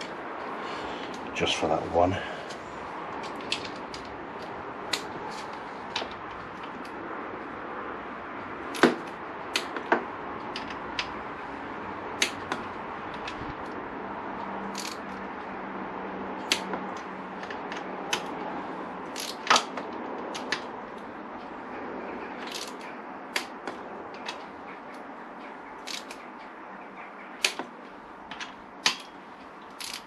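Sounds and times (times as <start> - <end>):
torque wrench clicking: 14.7 - 15.1, 19.1 - 19.7, 22.4 - 23.5, 25.8 - 26.2, 29.7 - 30.0.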